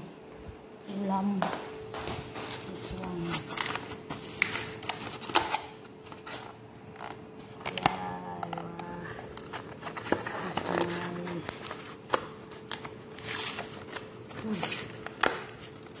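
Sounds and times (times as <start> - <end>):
faint steady hum: 0.0 - 16.0
foil tray crinkling and scraping: 2.9 - 7.9, 8.5 - 16.0.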